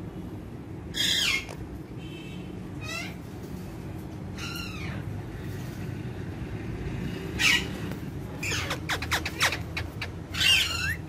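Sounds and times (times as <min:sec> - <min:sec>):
parakeet calls: 0:00.9 - 0:01.6, 0:02.8 - 0:03.3, 0:04.4 - 0:05.3, 0:07.3 - 0:11.0.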